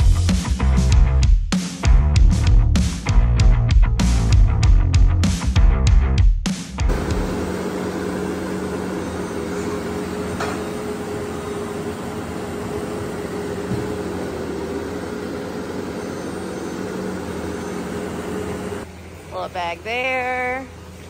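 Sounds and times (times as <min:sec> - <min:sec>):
diesel engine running: 0:06.9 - 0:21.0.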